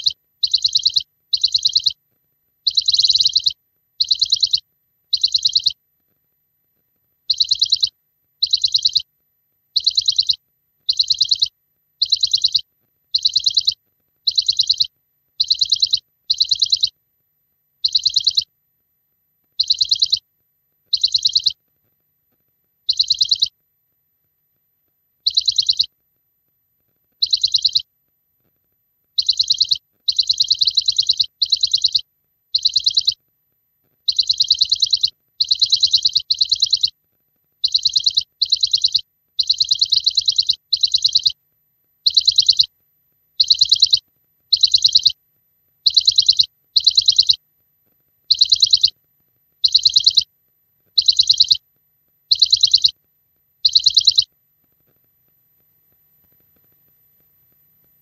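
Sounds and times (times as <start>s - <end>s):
trilled bird chirps: 0.0s - 2.0s, 2.6s - 5.8s, 7.2s - 9.1s, 9.7s - 17.0s, 17.8s - 18.5s, 19.5s - 20.2s, 20.9s - 21.6s, 22.8s - 23.6s, 25.2s - 25.9s, 27.2s - 27.9s, 29.1s - 33.2s, 34.0s - 37.0s, 37.6s - 41.4s, 42.0s - 42.7s, 43.3s - 45.2s, 45.8s - 47.4s, 48.2s - 49.0s, 49.6s - 50.3s, 50.9s - 51.6s, 52.2s - 53.0s, 53.6s - 54.3s.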